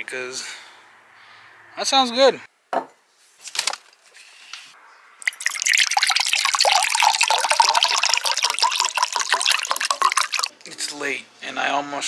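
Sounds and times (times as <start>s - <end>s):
liquid pouring into a glass: 5.2s - 10.5s.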